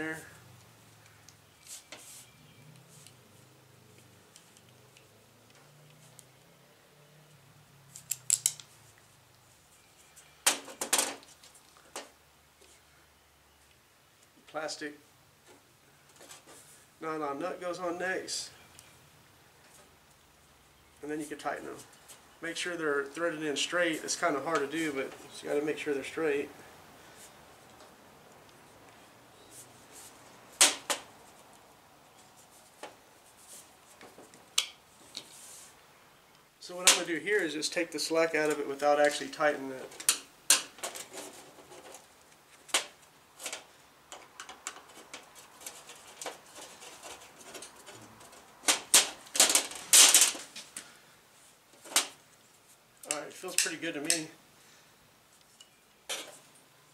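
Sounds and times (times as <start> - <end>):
small metal parts clicking: 7.9 - 8.7.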